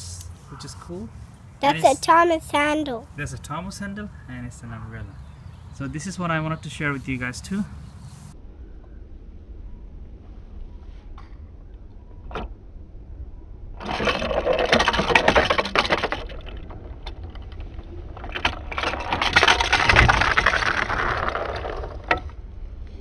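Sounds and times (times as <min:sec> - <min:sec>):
toy car rolling down plastic track: 0:13.8 - 0:22.3.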